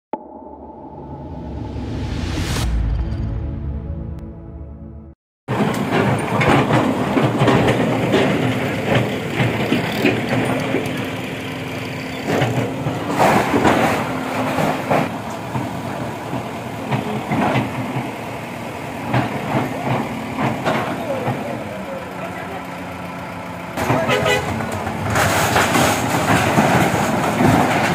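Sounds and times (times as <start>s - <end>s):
backhoe diesel engine running: 5.5s - 27.9s
debris clattering and masonry breaking: 24.7s - 27.9s.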